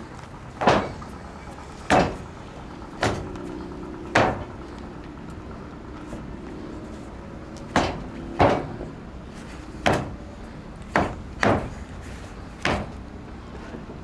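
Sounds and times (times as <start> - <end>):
feet stamping on wooden deck: 9.8 - 10.2.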